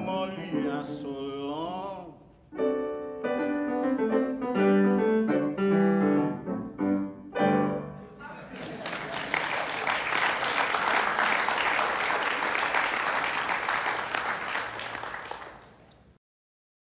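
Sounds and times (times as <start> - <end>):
audience applauding: 8.6 - 15.9.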